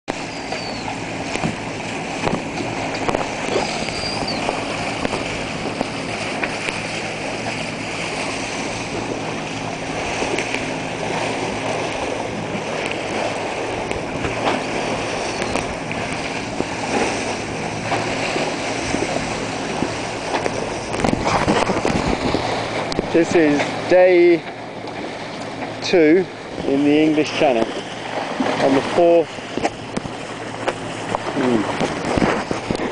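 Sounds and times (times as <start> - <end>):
wind on microphone: 0.1 - 25.6, 26.4 - 32.9
water rushing along hulls: 0.1 - 32.9
man whistling: 0.3 - 0.9, 3.5 - 4.5.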